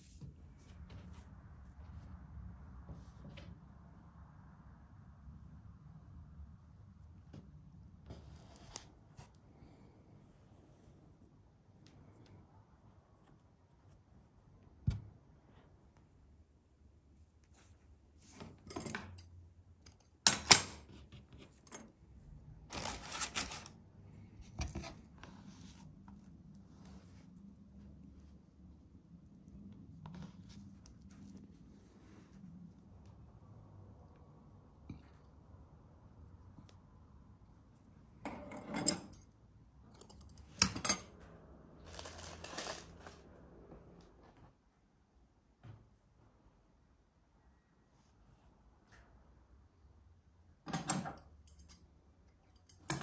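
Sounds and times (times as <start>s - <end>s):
string tugging and rustling: 22.6s - 33.4s
papery rustle of parchment: 22.7s - 23.7s, 41.8s - 43.2s.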